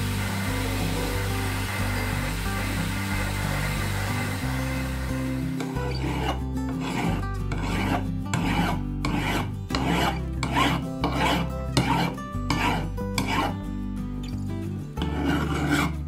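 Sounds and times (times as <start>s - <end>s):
file rasping on steel: 5.6s - 13.6s, 15.0s - 16.0s.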